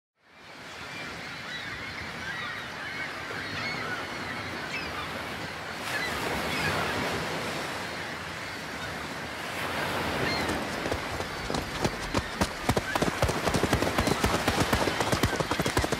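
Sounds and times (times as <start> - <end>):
wind: 0.2 - 15.9
ocean waves washing: 5.0 - 15.9.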